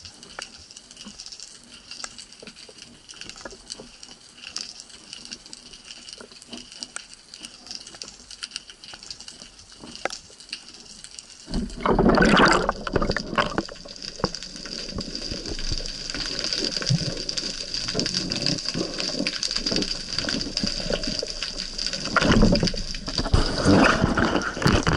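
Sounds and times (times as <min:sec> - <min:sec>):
faint crackling clicks underwater: 0:00.0 - 0:24.9
water rushing and churning: 0:11.5 - 0:24.9.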